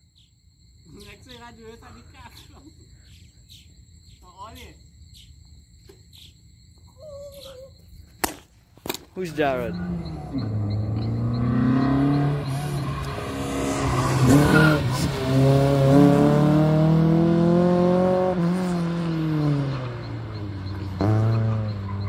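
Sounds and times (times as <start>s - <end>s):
car engine revving: 9.3s - 22.0s.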